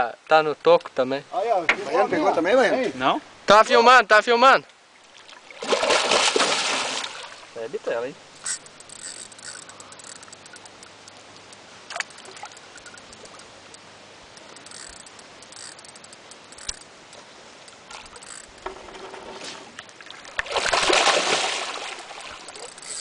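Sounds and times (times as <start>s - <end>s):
faint water sound: 0.0s - 23.0s
fish thrashing and splashing: 5.4s - 7.4s, 19.9s - 23.0s
small clicks: 8.4s - 18.8s.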